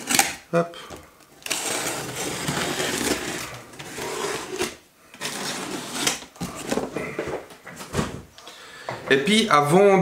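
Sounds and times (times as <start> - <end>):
cardboard box scraping and rustling: 1.6 - 7.0.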